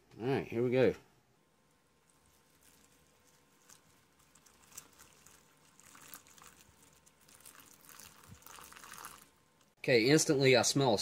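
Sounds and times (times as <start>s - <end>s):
water pouring into a foil pouch: 2.0s - 9.7s.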